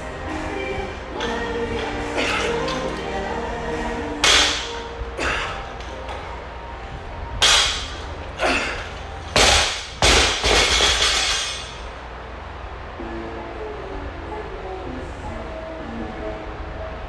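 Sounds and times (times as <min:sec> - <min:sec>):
barbell dropped on rubber floor: 0:04.2 - 0:04.7, 0:07.4 - 0:08.0, 0:09.4 - 0:11.8.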